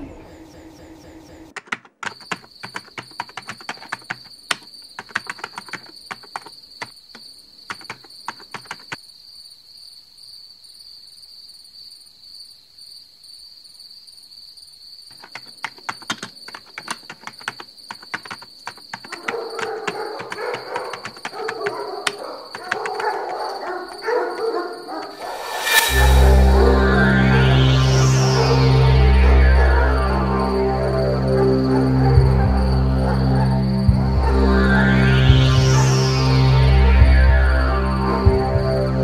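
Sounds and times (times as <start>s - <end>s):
laptop keyboard typing: 1.4s - 9.0s, 15.1s - 25.2s
steady high-pitched tone: 25.1s - 39.0s.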